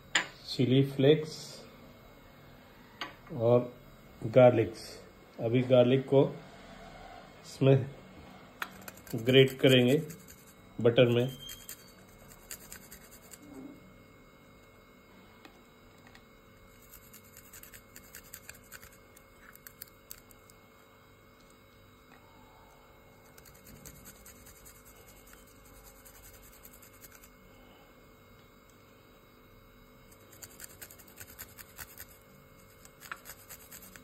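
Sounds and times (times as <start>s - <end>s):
garlic scratching on a grater: 8.6s - 13.6s, 16.7s - 20.4s, 23.2s - 27.4s, 30.1s - 34.0s.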